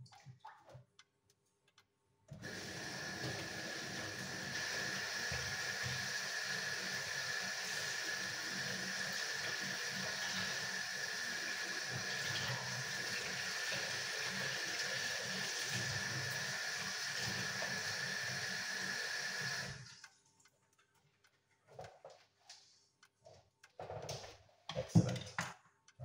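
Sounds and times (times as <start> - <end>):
kitchen tap running: 2.3 - 20.0.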